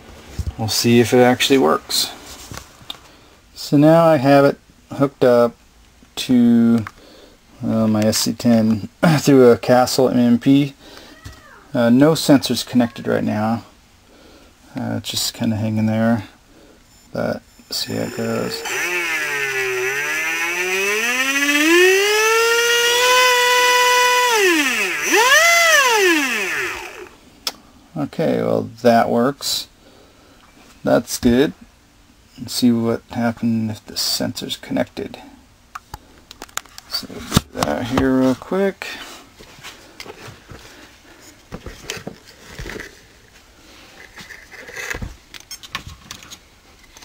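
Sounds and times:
electric motor whine: 17.8s - 27.2s.

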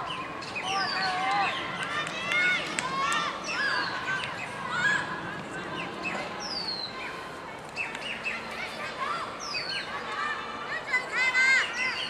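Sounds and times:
distant shouting voices: 0.0s - 12.0s
steady outdoor hiss: 0.0s - 12.0s
bird chirps: 9.4s - 10.0s.

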